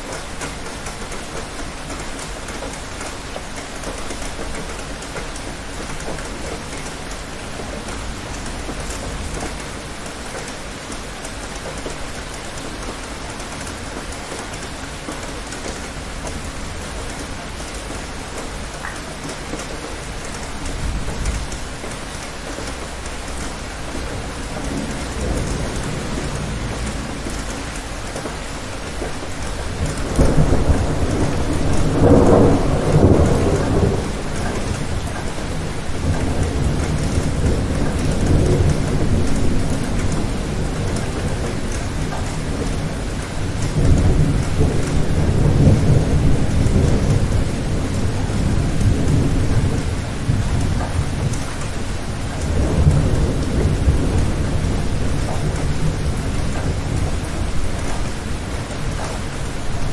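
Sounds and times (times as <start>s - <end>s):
steady rain falling: 0.0s - 59.9s
thunder rumbling: 14.9s - 59.9s.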